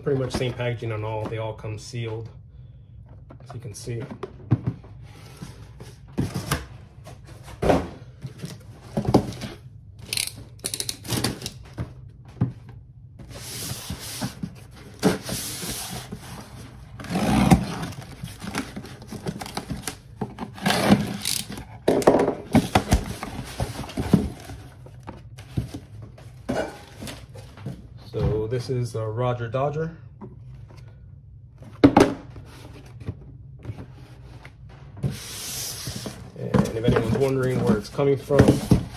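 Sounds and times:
cardboard scraping: 0:13.2 - 0:21.6, 0:32.4 - 0:38.9.

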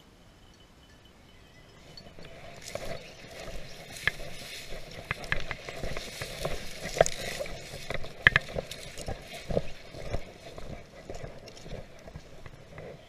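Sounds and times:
rustling through dry brush: 0:01.8 - 0:13.0
twigs snapping: 0:02.6 - 0:12.1.

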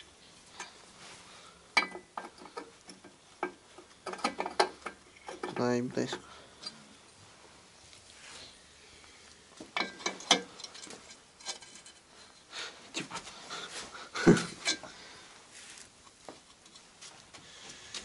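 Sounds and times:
metal knocks and scrapes: 0:01.8 - 0:06.2, 0:09.6 - 0:12.1.

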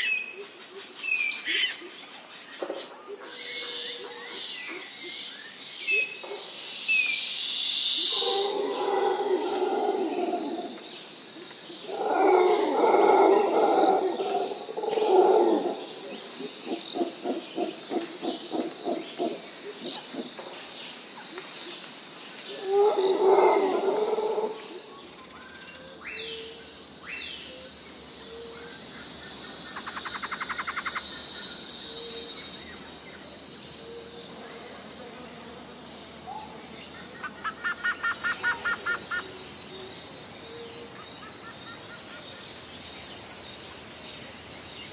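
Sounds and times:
small birds chirping and trilling: 0:24.8 - 0:44.9.

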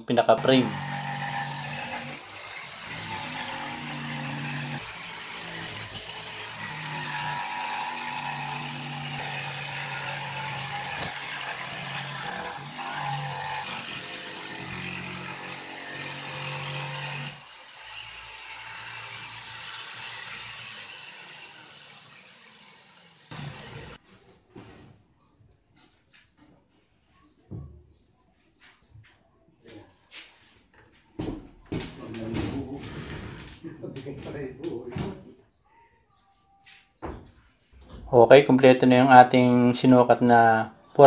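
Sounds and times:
electric jigsaw cutting plywood: 0:00.4 - 0:24.0.

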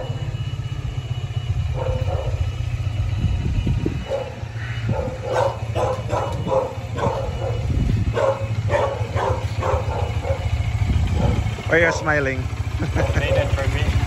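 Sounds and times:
motorcycle engine running: 0:00.0 - 0:14.0
dog barking: 0:01.7 - 0:02.5, 0:04.0 - 0:12.2, 0:12.9 - 0:13.6.

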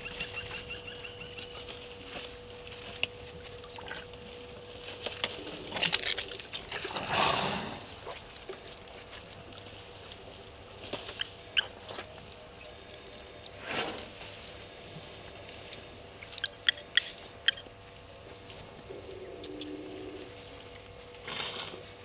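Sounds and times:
bird chirps: 0:00.0 - 0:01.6, 0:16.3 - 0:17.8
water splashing from trunks: 0:05.8 - 0:09.3.

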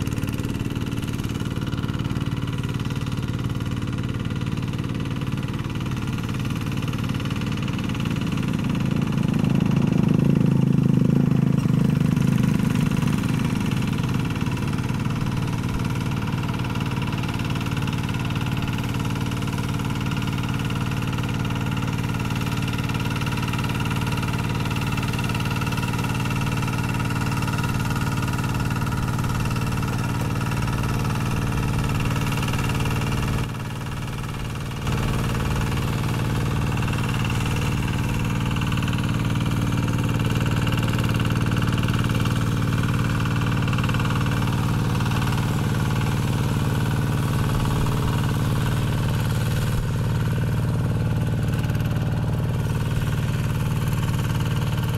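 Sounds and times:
diesel tractor engine running: 0:00.0 - 0:54.9.

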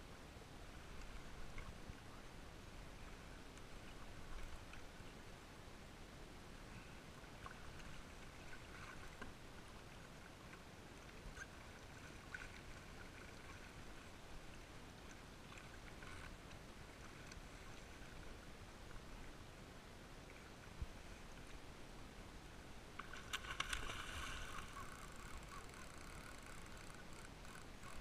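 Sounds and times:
low steady rumble: 0:00.0 - 0:28.0
water lapping against kayak hull: 0:23.0 - 0:28.0
small ticks: 0:23.4 - 0:28.0.

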